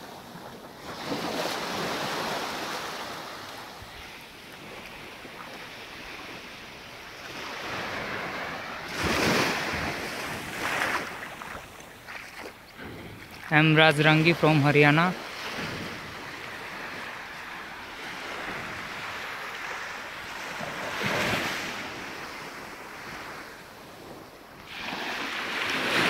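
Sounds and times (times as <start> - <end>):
waves lapping on beach: 0.0 - 26.0.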